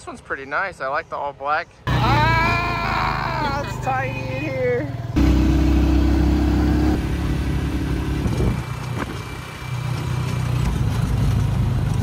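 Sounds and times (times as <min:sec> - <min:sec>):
motorcycle engine droning: 0:01.9 - 0:11.4.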